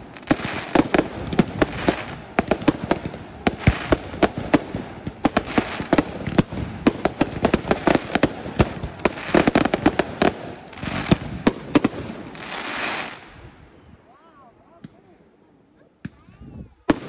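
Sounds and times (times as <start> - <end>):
fireworks bangs: 0.0 - 13.5
fireworks crackling and hissing: 0.0 - 13.8, 16.0 - 17.0.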